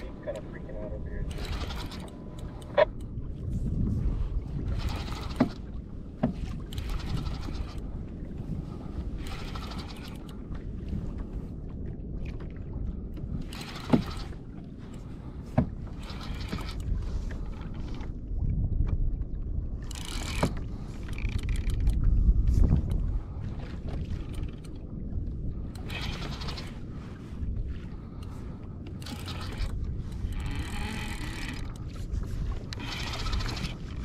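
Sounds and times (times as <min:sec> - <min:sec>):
water against kayak hull: 0:00.0 - 0:34.0
wind: 0:00.0 - 0:34.0
fishing reel gears clicking: 0:01.3 - 0:02.8, 0:13.5 - 0:14.3, 0:19.8 - 0:21.9, 0:29.0 - 0:31.8, 0:32.7 - 0:33.8.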